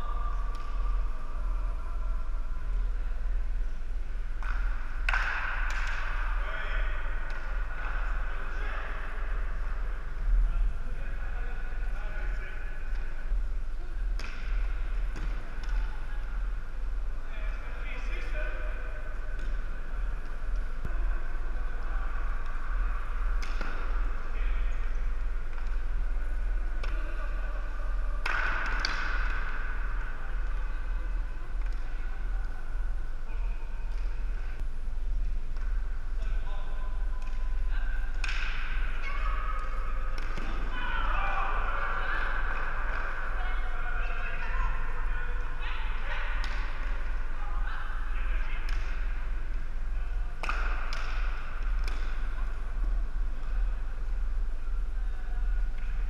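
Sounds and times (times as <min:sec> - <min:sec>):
low steady hum: 0:00.0 - 0:56.0
hockey sticks and ball clacking: 0:00.3 - 0:01.6, 0:04.3 - 0:09.9, 0:14.0 - 0:16.4, 0:19.1 - 0:32.6, 0:33.3 - 0:34.7, 0:35.5 - 0:44.6, 0:45.9 - 0:47.2, 0:48.3 - 0:54.1
hockey sticks knocking ball: 0:04.4 - 0:06.2, 0:28.2 - 0:29.6, 0:38.2 - 0:38.8, 0:50.4 - 0:52.2.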